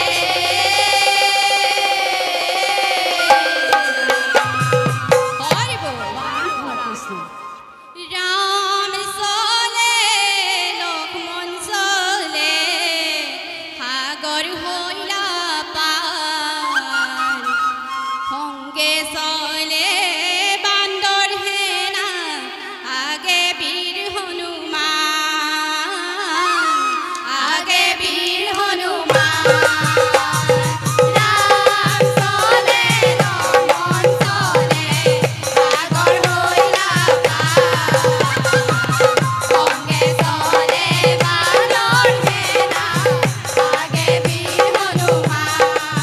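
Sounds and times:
women singing together: 0.0s - 4.4s, 8.0s - 16.8s, 18.8s - 46.0s
hand drums: 0.0s - 6.6s, 29.1s - 46.0s
bamboo flute melody: 2.6s - 8.0s, 16.6s - 18.8s, 38.1s - 40.3s.

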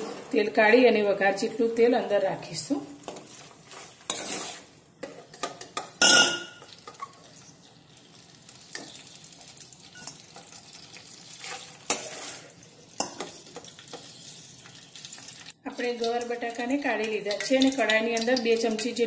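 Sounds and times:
oil sizzling: 2.6s - 19.0s
steel ladle scraping a pan: 3.0s - 9.1s, 9.9s - 15.2s.

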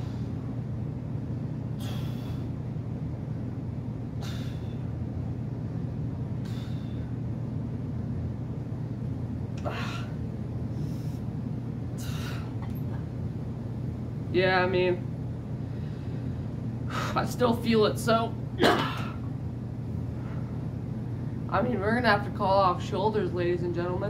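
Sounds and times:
man breathing hard: 0.0s - 0.4s, 1.7s - 2.7s, 4.1s - 5.0s, 6.4s - 7.2s, 9.6s - 12.6s
steady low hum: 0.0s - 24.0s.

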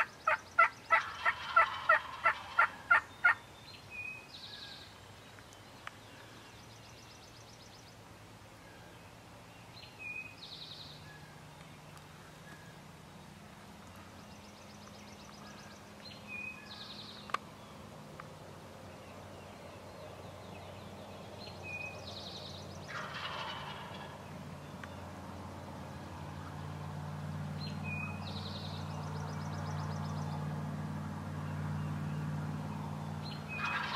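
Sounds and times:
turkey gobbling: 0.0s - 3.4s, 22.9s - 24.2s, 33.6s - 33.9s
songbird high song: 0.0s - 33.9s.

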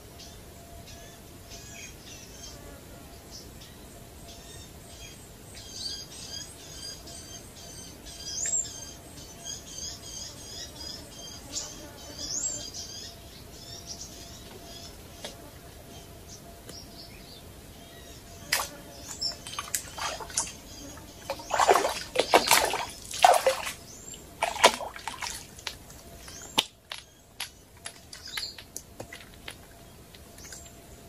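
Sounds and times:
birds chirping faintly: 0.0s - 31.0s
fish thrashing and splashing: 18.5s - 26.7s.

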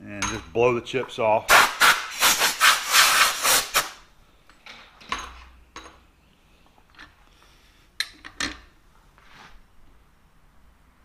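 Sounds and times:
compressed air bursts: 1.5s - 4.0s.

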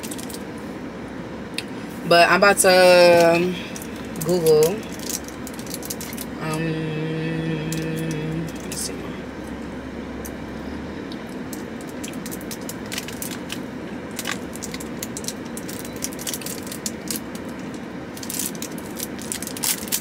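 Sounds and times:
plastic wrapper crinkling: 0.0s - 0.4s, 3.1s - 6.4s, 11.5s - 20.0s.

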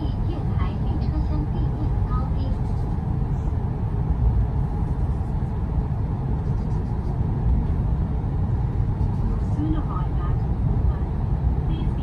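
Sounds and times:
train cabin rumble: 0.0s - 12.0s.

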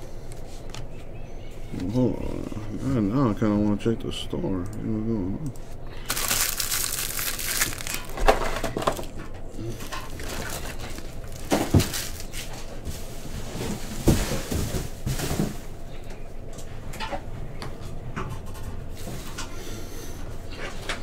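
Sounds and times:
packaging crinkling: 6.0s - 9.2s, 9.8s - 12.7s.

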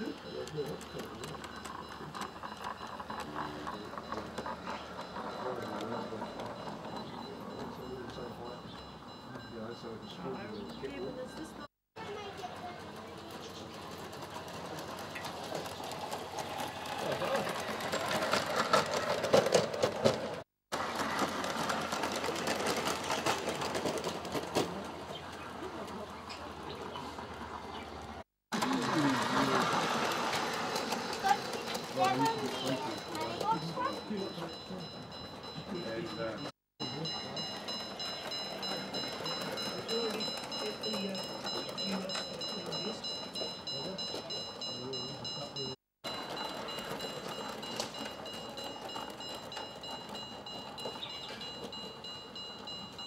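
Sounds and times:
wheels clicking on rails: 0.0s - 53.0s
model train motor hum: 28.6s - 34.7s.

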